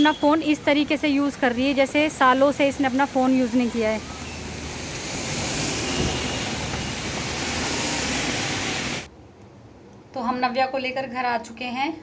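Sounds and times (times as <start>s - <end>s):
heavy rain falling: 1.9s - 9.1s.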